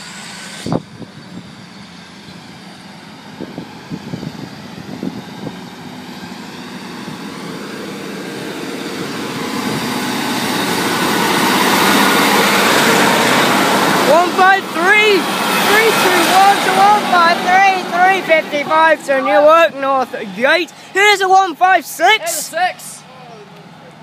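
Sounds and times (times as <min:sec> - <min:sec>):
diesel train engine and wheels: 0:00.0 - 0:24.0.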